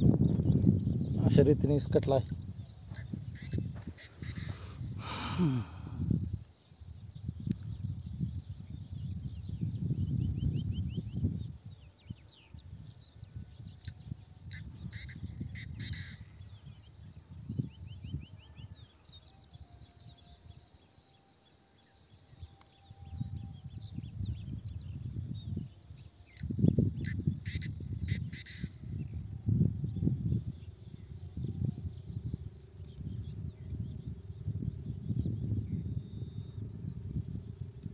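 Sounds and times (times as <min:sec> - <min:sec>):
birds calling: 0:00.0 - 0:08.0, 0:12.7 - 0:17.7, 0:25.2 - 0:29.2
wind buffeting microphone: 0:00.0 - 0:20.7, 0:22.1 - 0:37.9.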